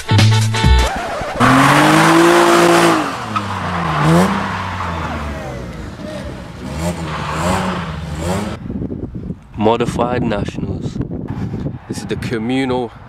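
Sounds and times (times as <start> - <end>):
tyre squeal: 0.8 - 8.5
car engine revving: 0.9 - 8.6.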